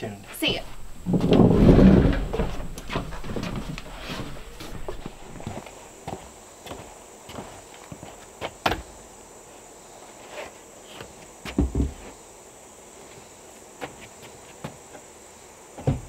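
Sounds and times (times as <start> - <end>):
insects droning: 0.0 - 16.0
footsteps on wooden deck: 0.3 - 8.8, 15.8 - 16.0
heavy double thump: 0.6 - 5.4.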